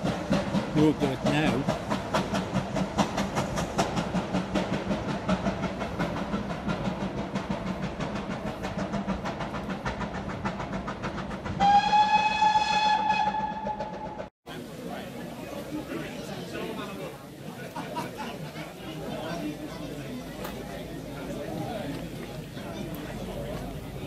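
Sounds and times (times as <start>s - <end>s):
steam locomotive chuffing: 0.0s - 24.0s
steam whistle: 11.6s - 14.2s.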